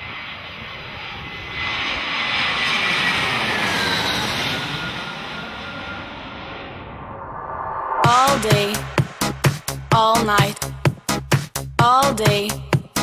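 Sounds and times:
faint engine whine: 0.0 - 8.0
airplane passing overhead: 0.0 - 9.8.

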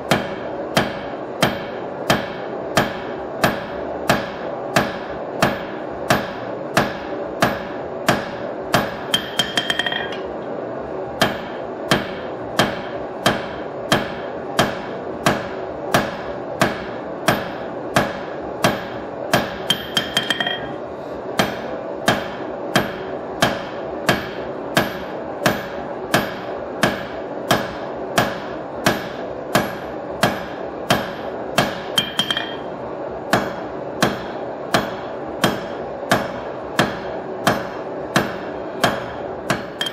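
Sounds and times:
hammer striking hot steel on anvil: 0.0 - 10.3, 11.2 - 20.8, 21.4 - 32.7, 33.3 - 39.9
steady hum: 0.0 - 39.9
anvil ringing: 9.1 - 10.3, 19.7 - 20.8, 31.0 - 32.7, 39.6 - 39.9.

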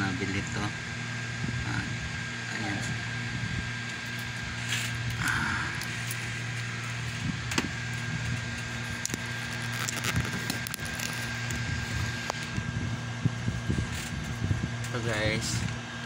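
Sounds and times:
faint thin whine: 0.0 - 15.8
low mechanical hum: 0.0 - 16.0.

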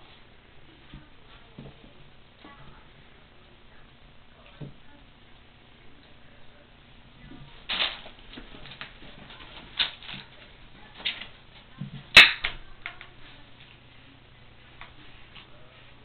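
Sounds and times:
sharp crack: 7.7 - 8.2, 12.1 - 12.6.

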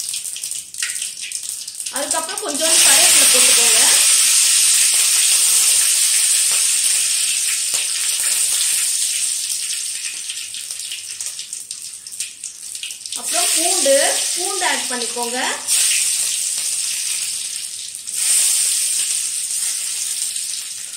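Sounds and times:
leaves sizzling in hot oil: 0.0 - 20.9
person speaking: 1.9 - 4.1, 13.2 - 15.7.

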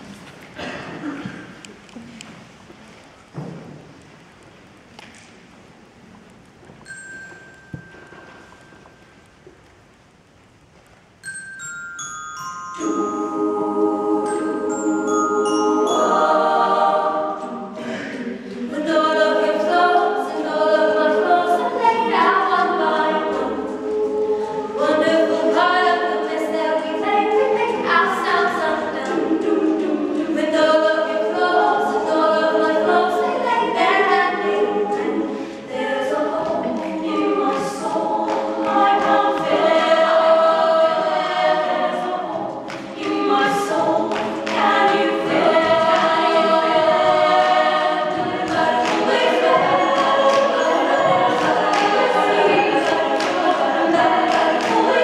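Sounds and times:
women's choir singing: 12.4 - 55.0.

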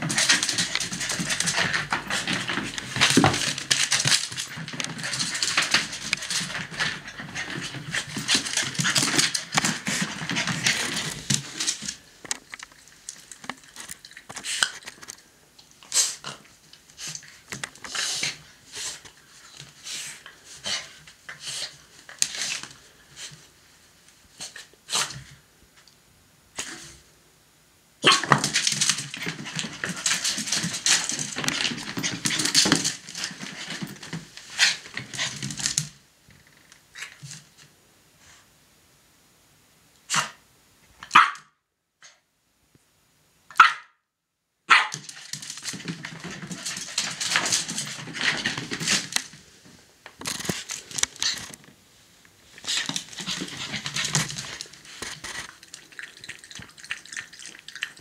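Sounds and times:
puppy barking: 41.1 - 41.6, 43.5 - 44.0, 44.7 - 45.0.

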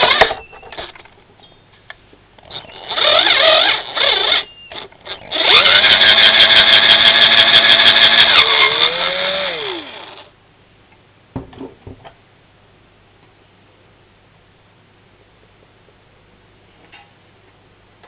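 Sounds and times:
power drill drilling: 0.0 - 1.0, 2.4 - 10.3.

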